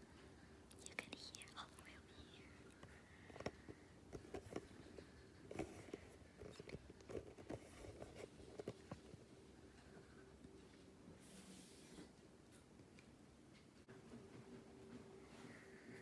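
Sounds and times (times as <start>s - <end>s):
faint clicks and rustles: 0.0s - 11.4s
faint steady hum: 0.0s - 16.0s.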